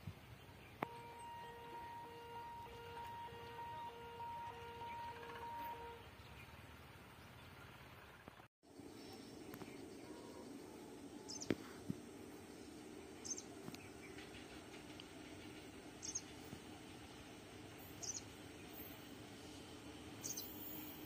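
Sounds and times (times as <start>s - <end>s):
bird chirping: 13.2s - 14.6s, 16.0s - 16.4s, 17.9s - 18.8s, 20.2s - 21.0s.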